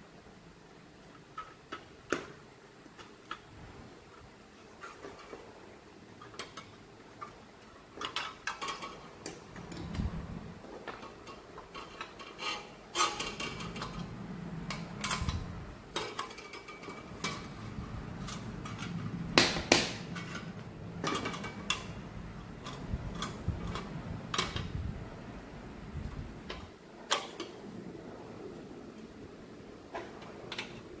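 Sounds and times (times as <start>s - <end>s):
metal parts clinking: 10.9s - 19.2s.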